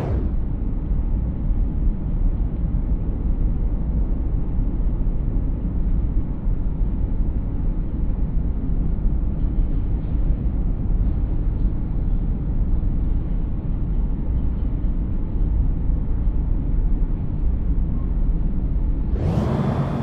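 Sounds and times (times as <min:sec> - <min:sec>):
vehicle road rumble: 0:00.0 - 0:03.3, 0:18.8 - 0:20.0.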